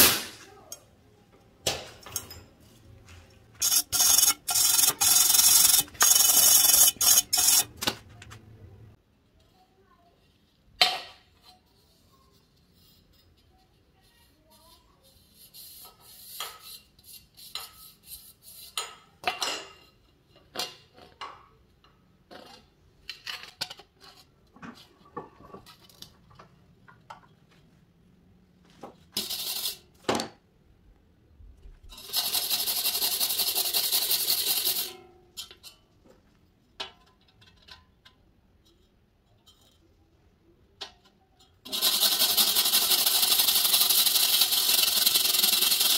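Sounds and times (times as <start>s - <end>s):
metal scraping on metal: 3.6s - 8.0s, 29.2s - 29.9s, 31.9s - 35.8s.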